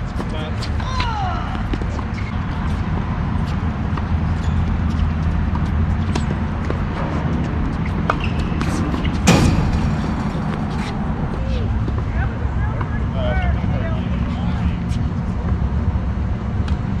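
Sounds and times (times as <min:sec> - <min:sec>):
tennis racket hitting ball: 0:00.0 - 0:12.1
steady low rumble: 0:00.0 - 0:17.0.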